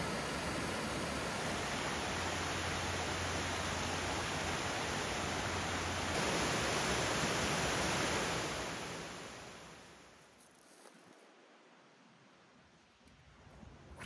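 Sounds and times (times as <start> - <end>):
waterfall rushing over rock: 0.0 - 10.1.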